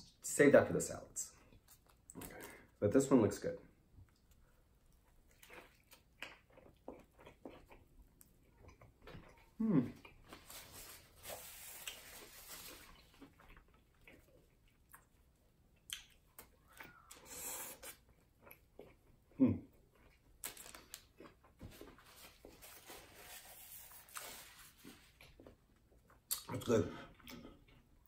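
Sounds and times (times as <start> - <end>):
wet chewing: 4.0 - 10.2.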